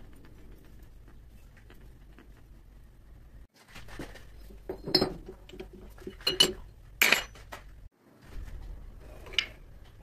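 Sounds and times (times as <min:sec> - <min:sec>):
metal clinks and knocks: 0:04.4 - 0:07.5.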